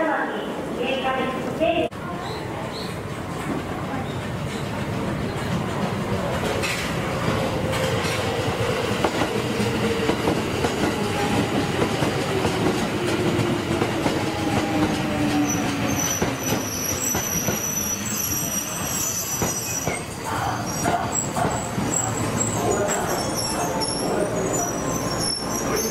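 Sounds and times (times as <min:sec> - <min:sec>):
wheels clacking on rails: 0:02.2 - 0:25.9
brake squeal: 0:21.8 - 0:25.9.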